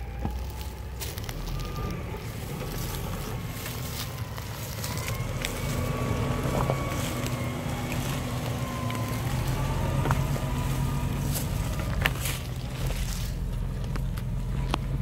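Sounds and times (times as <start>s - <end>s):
tyres crunching over stones: 0.0s - 15.0s
vehicle engine running: 0.0s - 15.0s.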